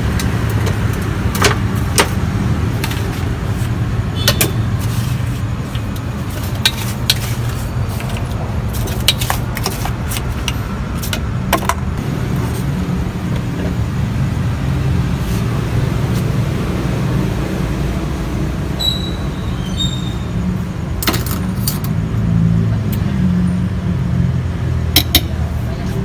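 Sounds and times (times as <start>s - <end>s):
low rumble of road traffic: 0.0s - 26.0s
high squeak: 18.8s - 20.4s.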